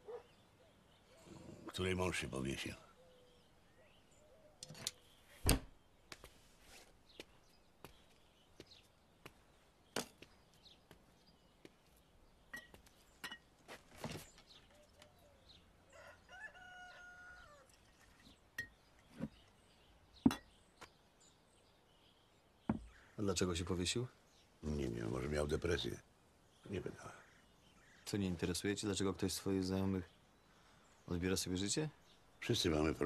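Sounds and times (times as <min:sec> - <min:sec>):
rooster crowing: 0:15.9 - 0:17.7.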